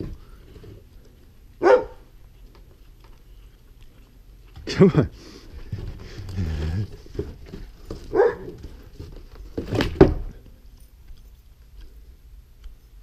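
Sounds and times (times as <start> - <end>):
dog barking: 1.6 - 2.1, 8.1 - 8.6.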